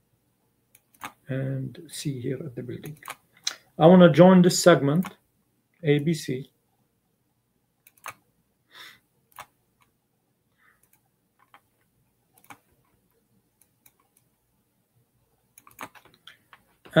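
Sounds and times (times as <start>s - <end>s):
faint clicks and taps: 10.7s - 14.4s, 15.6s - 17.0s.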